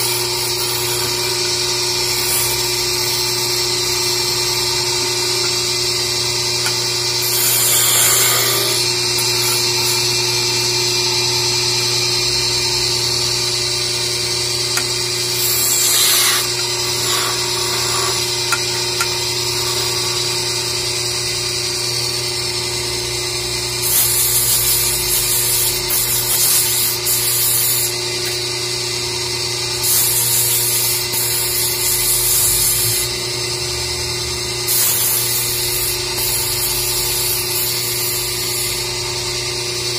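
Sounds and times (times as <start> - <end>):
wood lathe humming: 0.0 - 39.9
sandpaper hissing on wood: 7.2 - 10.0, 15.3 - 18.7.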